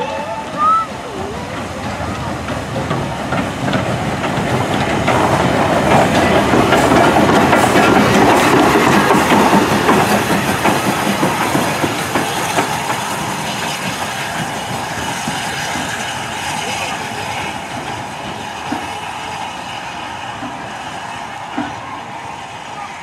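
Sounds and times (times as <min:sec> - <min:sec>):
steam locomotive passing: 0:00.0 - 0:23.0
wheels clanking on rails: 0:00.0 - 0:23.0.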